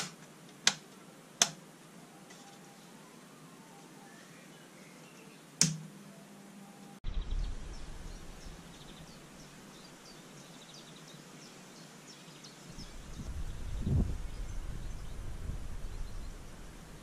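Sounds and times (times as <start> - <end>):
small birds chirping: 2.0 - 5.6, 6.7 - 17.0
low hum: 5.8 - 10.2, 12.7 - 17.0
low rumble: 7.0 - 9.6, 12.7 - 17.0.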